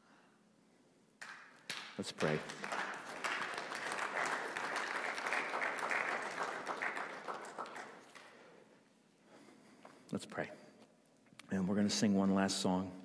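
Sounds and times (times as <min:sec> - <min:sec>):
congregation applauding: 0:01.2 - 0:08.6.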